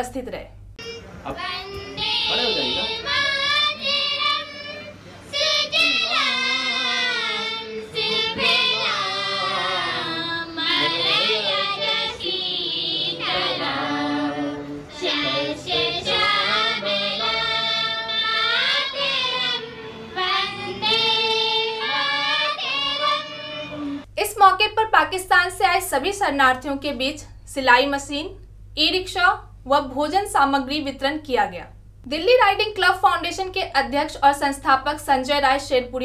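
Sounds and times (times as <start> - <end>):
children singing together: 0.8 - 24.1.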